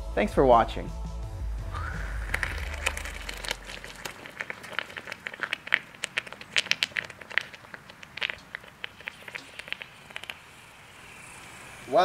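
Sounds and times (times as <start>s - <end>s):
sharp crackles and pops: 1.6s - 11.8s
molten metal pouring: 1.6s - 12.0s.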